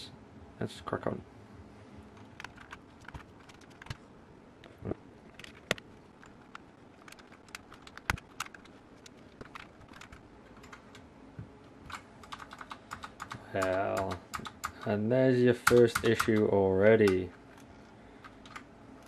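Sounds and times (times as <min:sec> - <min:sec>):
keycaps clicking onto keyboard switches: 0:02.2 - 0:04.0, 0:05.3 - 0:11.0, 0:11.8 - 0:15.0, 0:15.6 - 0:18.7.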